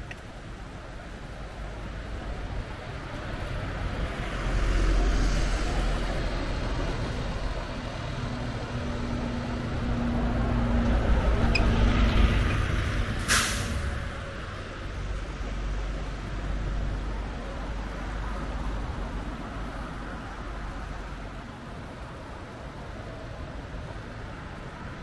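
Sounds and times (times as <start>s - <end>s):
bus engine drone: 0.0s - 25.0s
road traffic passing: 0.0s - 25.0s
air brakes hissing: 13.2s - 13.9s.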